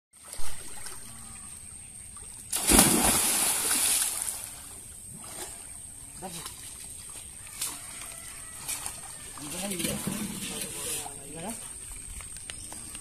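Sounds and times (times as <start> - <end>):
net splashing into water: 2.5 - 5.5.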